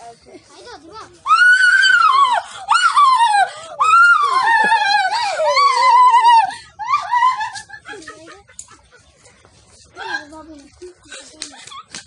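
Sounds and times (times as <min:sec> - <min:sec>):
high-pitched wailing cry: 0:01.3 - 0:07.7.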